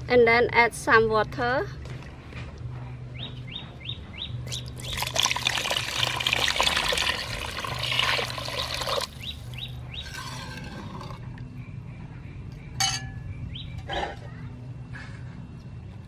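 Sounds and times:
water pouring into metal pot: 0:04.8 - 0:09.2
bird chirping: 0:09.1 - 0:10.3, 0:11.4 - 0:14.6.

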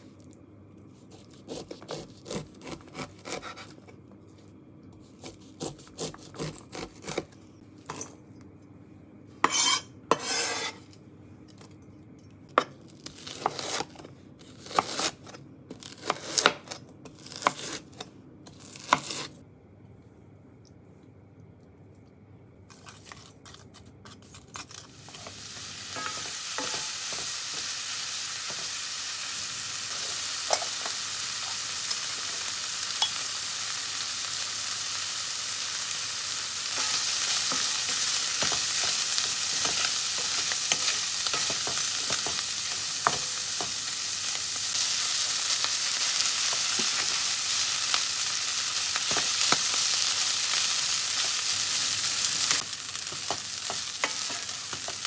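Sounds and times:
food sizzling in a frying pan: 0:24.7 - 0:55.0.

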